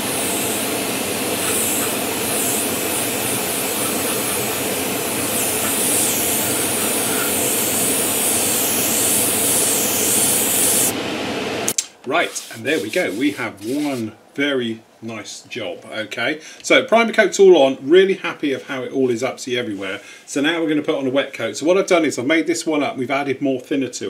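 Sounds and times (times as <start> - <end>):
airbrush hissing: 0.0 - 11.0, 12.2 - 14.1.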